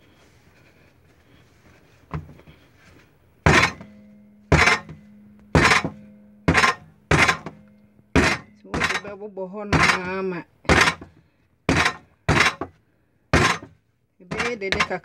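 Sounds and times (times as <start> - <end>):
dough thudding on stone counter: 3.4 - 12.8, 13.4 - 15.0.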